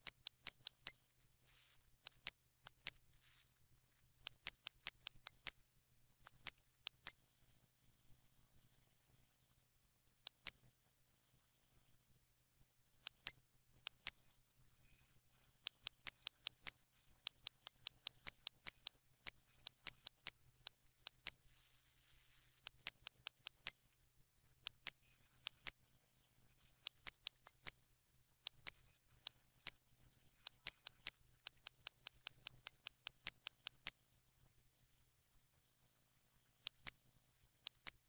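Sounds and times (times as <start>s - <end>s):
computer mouse clicking: 0.0s - 1.1s, 1.8s - 3.1s, 4.1s - 5.6s, 6.2s - 7.2s, 10.2s - 10.6s, 13.0s - 14.2s, 15.6s - 21.5s, 22.6s - 23.8s, 24.6s - 25.8s, 26.6s - 27.8s, 28.4s - 34.0s, 36.6s - 37.0s, 37.6s - 38.0s.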